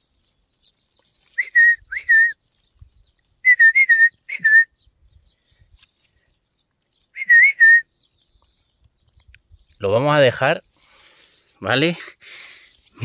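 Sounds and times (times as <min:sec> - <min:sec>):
person whistling: 0:01.4 - 0:02.4, 0:03.4 - 0:04.8, 0:07.2 - 0:07.9.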